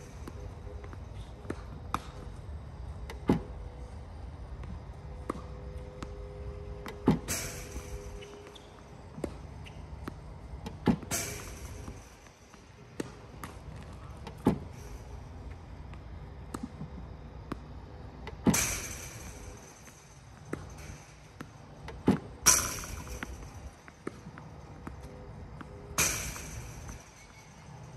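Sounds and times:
tennis balls hit and bouncing: 0.0s - 27.9s
ball machine firing thump: 18.3s - 27.8s.

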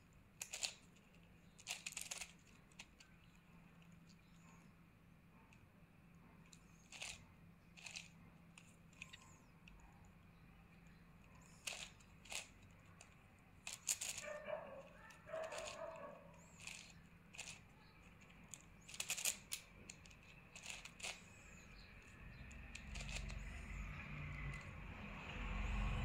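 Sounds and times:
plastic puzzle cube clicking: 0.4s - 4.2s, 6.5s - 9.3s, 11.4s - 23.9s.

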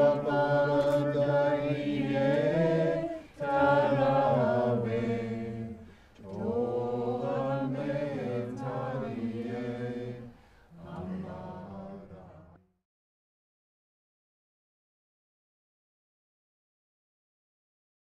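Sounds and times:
voices chanting held notes: 0.0s - 12.6s.

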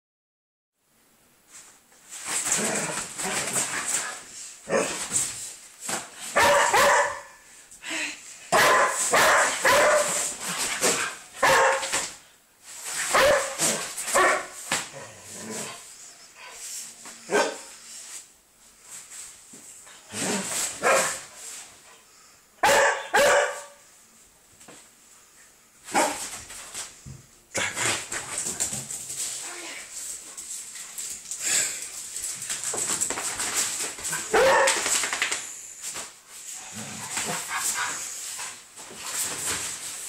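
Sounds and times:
small dog barking: 6.4s - 7.4s, 8.5s - 10.2s, 11.4s - 11.9s, 13.1s - 14.6s, 17.3s - 17.7s, 22.6s - 23.8s, 34.3s - 34.8s.

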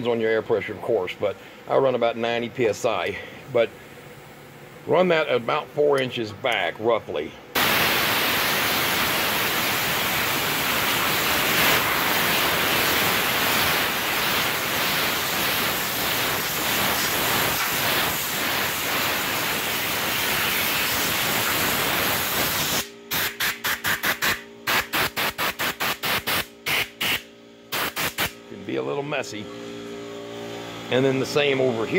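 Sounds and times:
air blow gun hissing: 7.6s - 28.4s.

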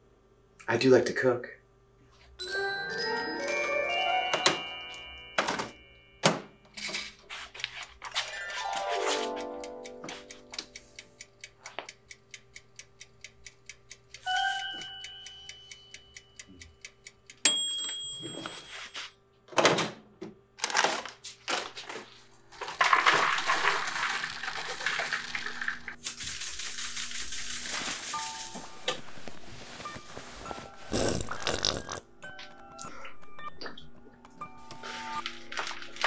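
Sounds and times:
chime: 2.4s - 6.2s, 14.2s - 16.4s, 17.5s - 19.0s
bright bell-like ding: 14.3s - 16.1s.

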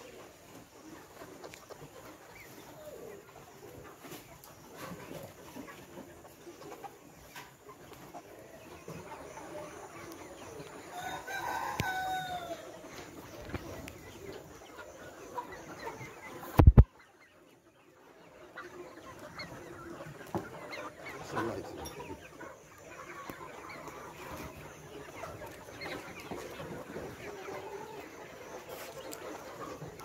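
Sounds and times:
hens clucking: 0.0s - 30.0s
rooster crow: 10.9s - 12.7s.

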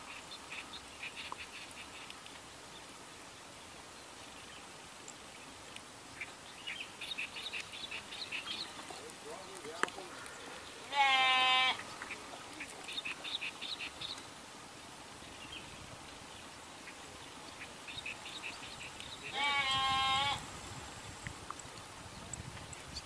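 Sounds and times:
goat bleating: 10.9s - 11.8s, 19.3s - 20.4s.

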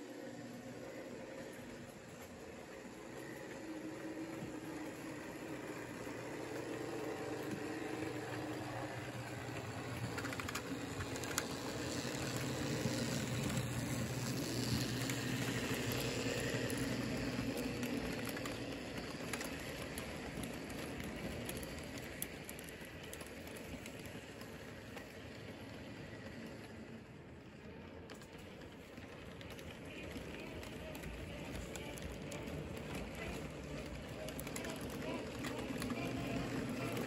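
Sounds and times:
model train wheels clattering: 0.6s - 37.0s.

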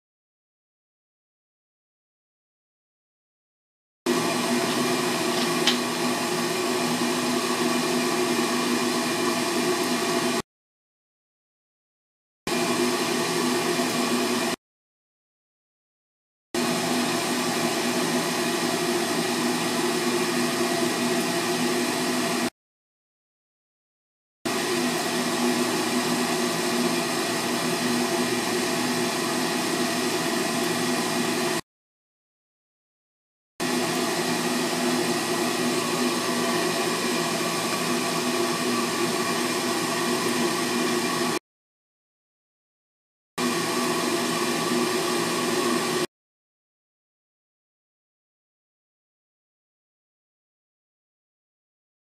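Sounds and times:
furnace motor whirring: 4.1s - 10.4s, 16.6s - 22.5s, 33.6s - 41.4s.

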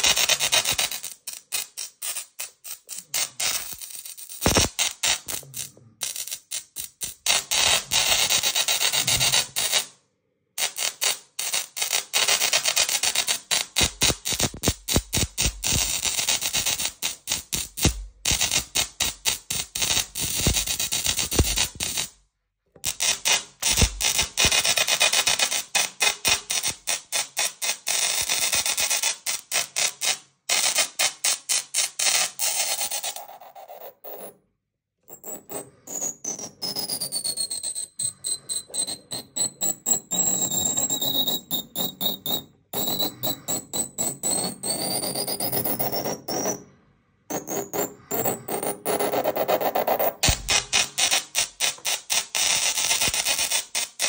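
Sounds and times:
musical tesla coil sparks crackling: 0.0s - 9.8s, 10.6s - 22.1s, 22.8s - 31.4s, 50.2s - 54.0s.

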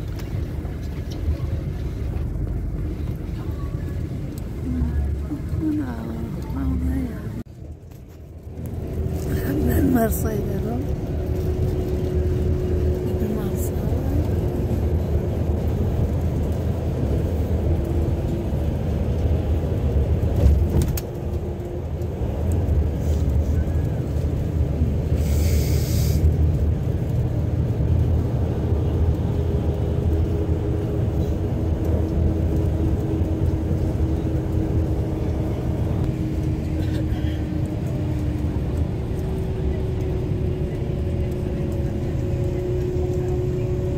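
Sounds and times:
vehicle rumble: 0.0s - 43.9s
brief hiss: 25.2s - 26.3s.

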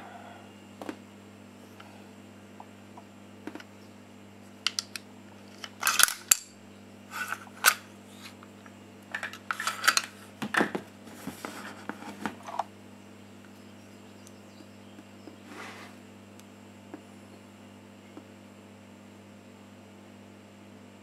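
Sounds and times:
low hum: 0.0s - 4.1s
rifle parts clicking and scraping: 4.7s - 6.5s, 7.1s - 8.4s, 9.1s - 10.2s.

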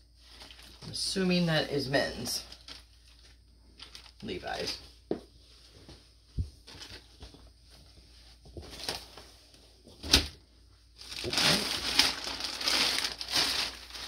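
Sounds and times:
plastic bags crinkling: 0.3s - 1.2s, 2.1s - 4.8s, 11.0s - 14.0s.

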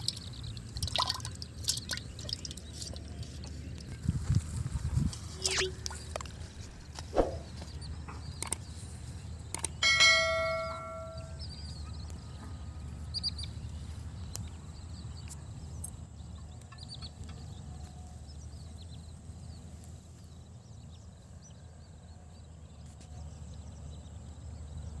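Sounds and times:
wind rumble on microphone: 2.1s - 8.4s
high bird chirps: 5.4s - 6.2s, 9.6s - 11.9s.

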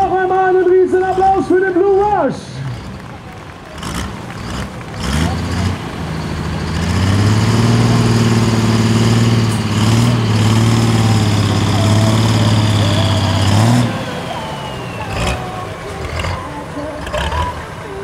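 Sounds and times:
diesel engine revving: 0.0s - 18.0s
high turbo whine: 5.0s - 18.0s.

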